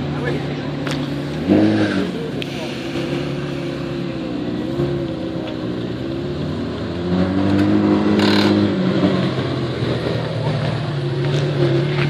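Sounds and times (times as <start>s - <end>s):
sports car engine idling: 0.0s - 7.0s.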